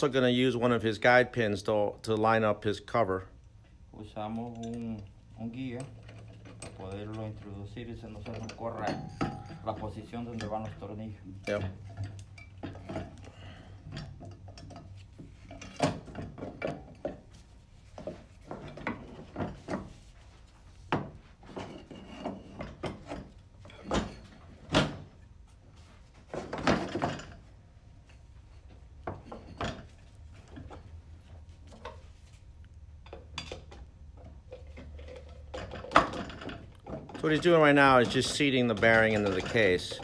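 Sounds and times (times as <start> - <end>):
metallic clinks and knocks: 4.2 - 20.1, 20.8 - 25.2, 25.8 - 32.4, 33.0 - 40.0.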